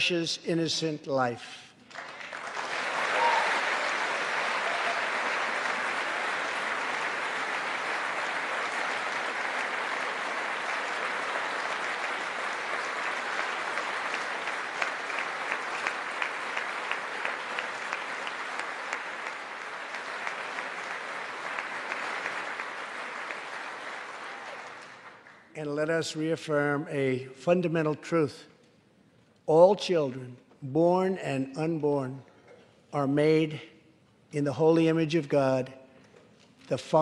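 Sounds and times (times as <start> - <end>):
large audience applauding: 1.8 - 25.5.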